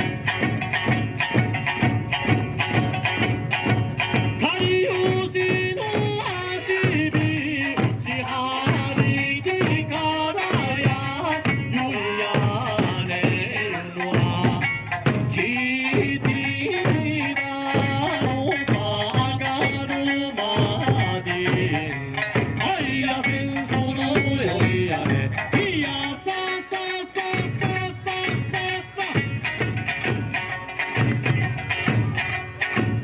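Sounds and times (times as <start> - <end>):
melody over drumbeat: 0.0 - 33.0.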